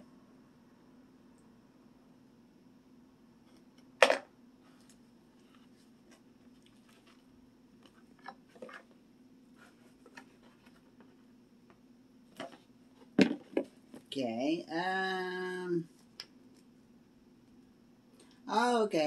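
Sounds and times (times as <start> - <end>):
low steady hum: 0.0 - 19.0
box knocks: 13.2 - 13.7.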